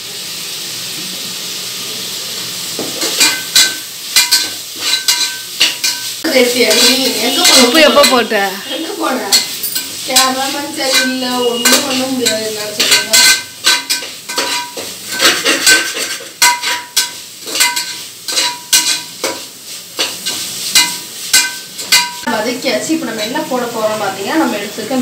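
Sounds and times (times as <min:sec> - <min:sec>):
food sizzling in oil: 0:00.0 - 0:25.0
metal ladle scraping pot: 0:03.0 - 0:19.4.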